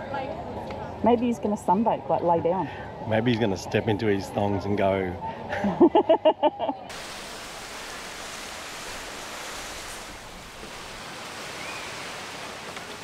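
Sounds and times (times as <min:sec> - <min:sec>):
surf washing on beach: 0:06.9 - 0:13.0.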